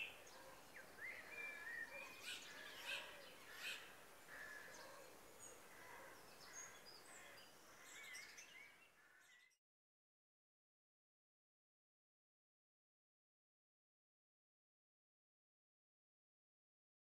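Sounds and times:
soft outdoor hiss: 0:00.0 - 0:09.5
birdsong chirps and whistles: 0:00.0 - 0:09.6.

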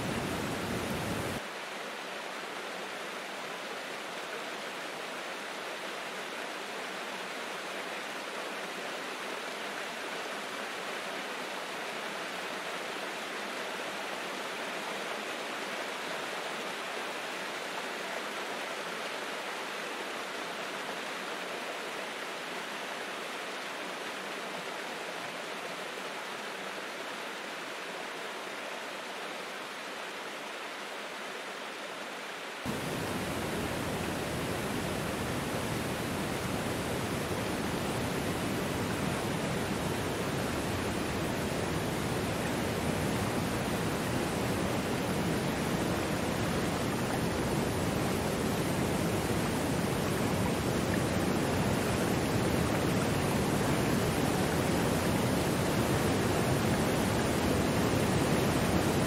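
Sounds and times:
waterfall rushing: 0:00.0 - 0:01.5, 0:32.7 - 0:59.0.

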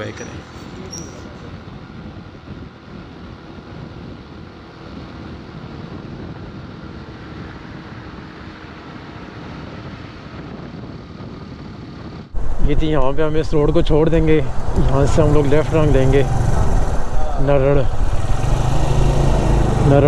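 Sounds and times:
wind and road noise: 0:00.0 - 0:20.0
motorcycle engine running: 0:12.3 - 0:20.0.

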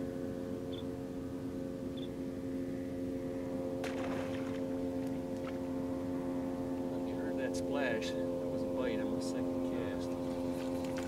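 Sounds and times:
motor hum: 0:00.0 - 0:11.0
fish splashing at surface: 0:03.8 - 0:04.7.

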